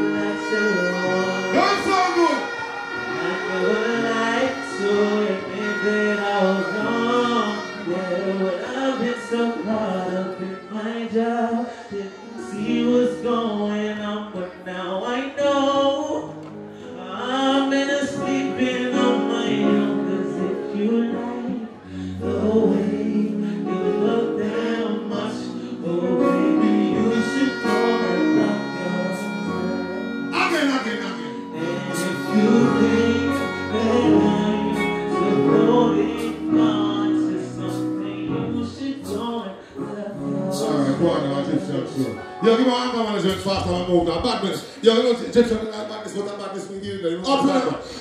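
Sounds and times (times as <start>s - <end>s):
live band music: 0.0s - 13.9s, 16.2s - 48.0s
man singing into a microphone: 0.0s - 46.4s.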